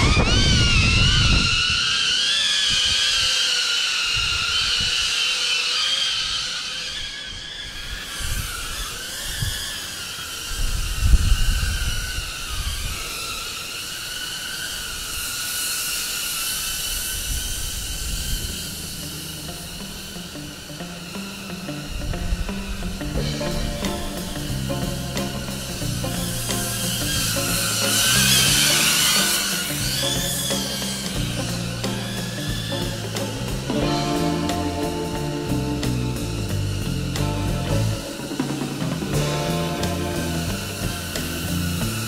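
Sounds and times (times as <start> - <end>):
low gusty rumbles: 0.0 - 1.8
quadcopter propellers whining: 0.0 - 42.0.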